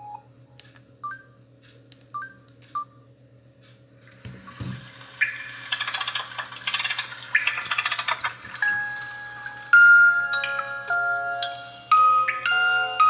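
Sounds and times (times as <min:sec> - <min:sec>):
ringtone tune with pulsing beat: 0:07.4 - 0:13.0.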